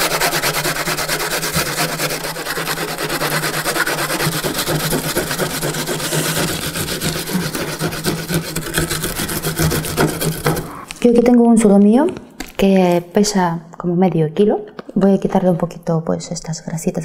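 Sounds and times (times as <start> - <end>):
onion grated on metal grater: 0.0 - 10.8.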